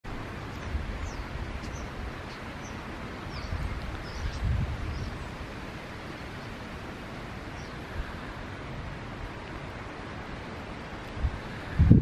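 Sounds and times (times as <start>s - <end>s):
wind buffeting microphone: 0.1s - 12.0s
starlings calling: 0.2s - 8.6s.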